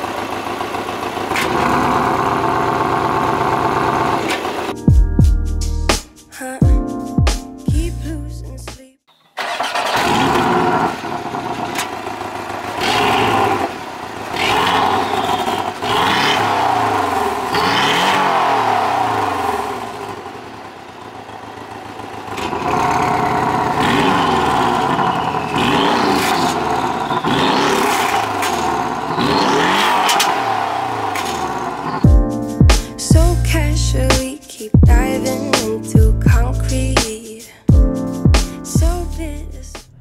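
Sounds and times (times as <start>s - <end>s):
car engine idling and revving: 0.0s - 4.7s, 9.6s - 32.1s, 39.0s - 40.0s.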